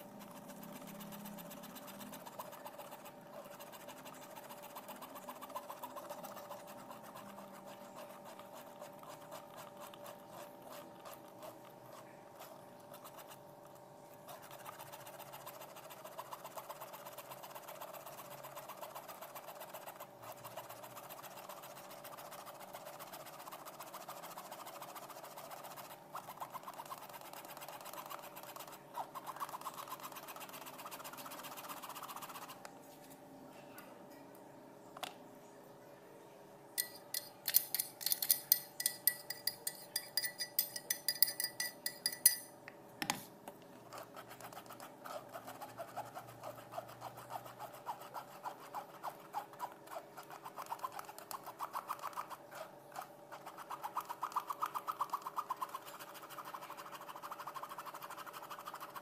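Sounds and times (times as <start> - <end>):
spoon scraping fruit pulp in sieve: 0.0 - 13.5, 36.8 - 59.0
spoon knock: 36.8 - 43.2.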